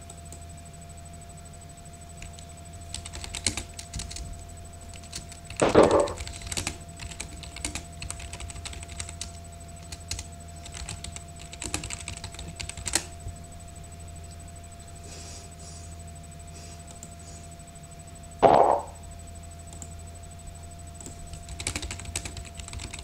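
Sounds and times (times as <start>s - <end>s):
electrical hum: 0.0s - 23.0s
typing on computer keyboard: 2.2s - 4.2s, 4.9s - 13.1s, 21.0s - 23.0s.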